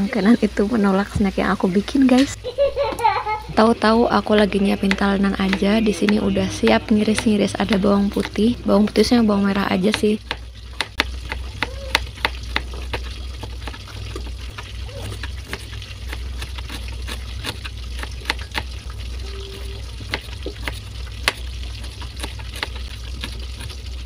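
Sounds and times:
knife tapping on cutting board: 4.3 - 6.2.

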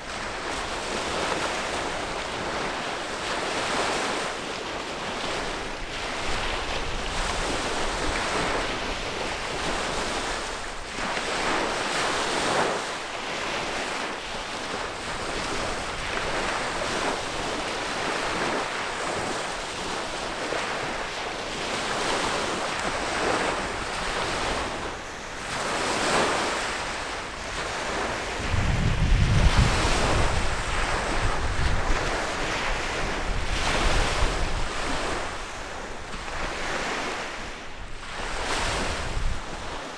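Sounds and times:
small waves washing against shore: 0.0 - 39.9
wind buffeting microphone: 0.0 - 39.9.

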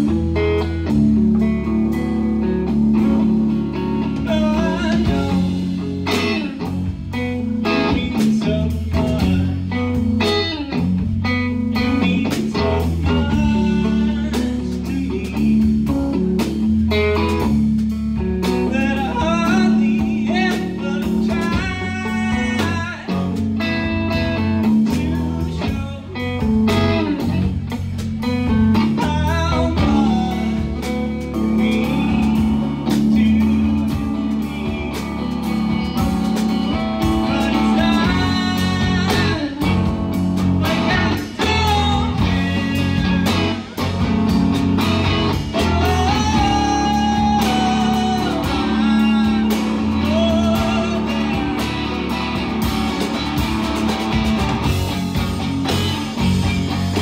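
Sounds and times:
drum kit: 0.0 - 57.0
electric bass: 0.0 - 57.0
electric guitar: 0.0 - 57.0
lead vocal singing: 3.9 - 10.7, 11.7 - 16.2, 18.4 - 27.5, 28.2 - 53.4.

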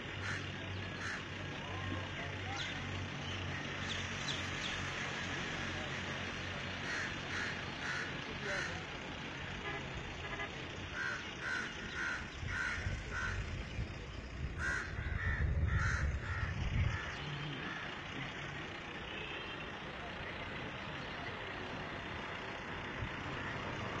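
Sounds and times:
bird calling: 10.9 - 13.6.

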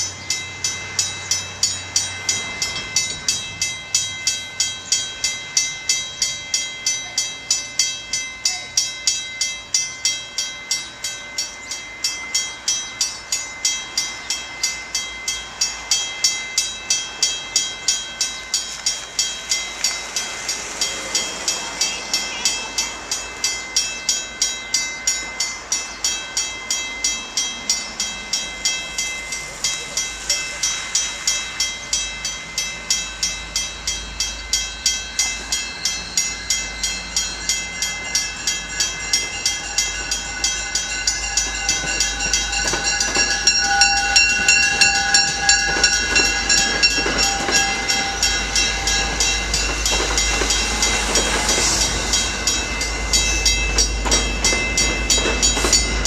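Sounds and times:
railroad crossing bell ringing: 0.0 - 56.0
train rumble: 0.0 - 56.0.

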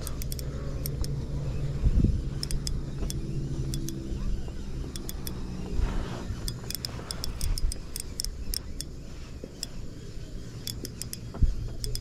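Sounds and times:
light sharp clicks: 0.0 - 1.2, 2.3 - 4.0, 4.8 - 9.8, 10.6 - 12.0
wind rumbling on microphone: 0.0 - 10.6, 11.2 - 12.0.

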